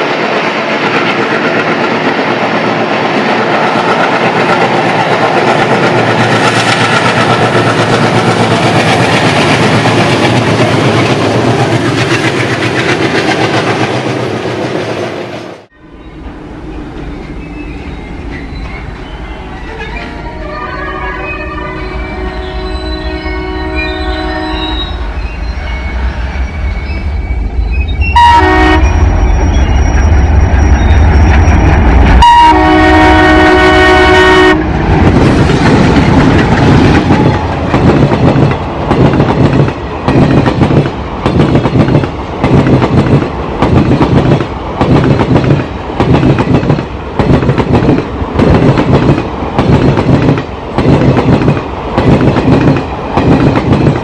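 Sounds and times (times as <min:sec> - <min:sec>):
diesel locomotive engine rumble: 0:00.0 - 0:54.0
train horn blast: 0:20.2 - 0:25.0, 0:28.0 - 0:29.3, 0:32.0 - 0:34.8.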